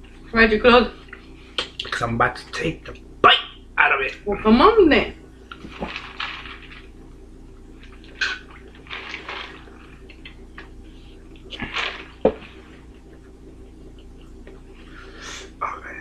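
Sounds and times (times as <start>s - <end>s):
steady low hum: 0.0s - 16.0s
paper cup rustling: 5.6s - 6.9s, 7.9s - 10.0s, 11.6s - 12.9s.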